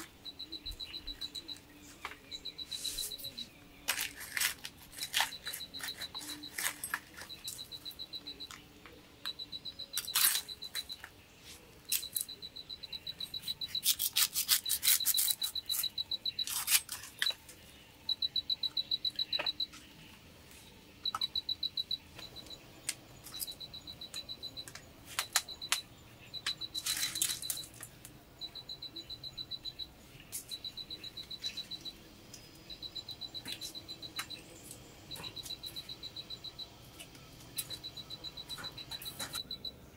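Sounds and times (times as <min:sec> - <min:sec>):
dry kindling snapping: 0:03.8 - 0:07.3.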